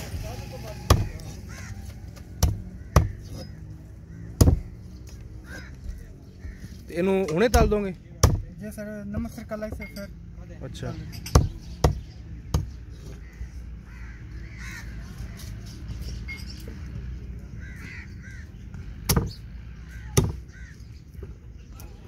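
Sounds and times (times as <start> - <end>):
cleaver chopping into wooden block: 0.9 - 1.2, 2.3 - 3.5, 4.4 - 4.8, 7.5 - 8.5, 19.0 - 19.4, 20.1 - 20.4
crows cawing: 0.9 - 7.7, 13.1 - 15.6, 17.5 - 21.0.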